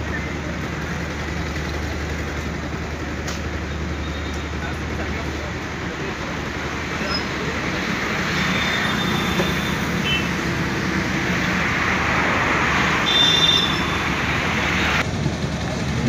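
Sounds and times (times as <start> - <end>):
road traffic: 0.0 - 16.0
car passing close: 7.2 - 16.0.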